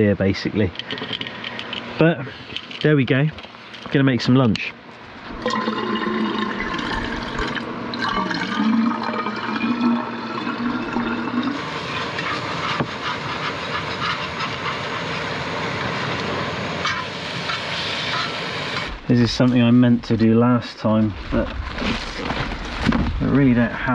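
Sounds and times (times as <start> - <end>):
water pouring: 5.4 - 13.2.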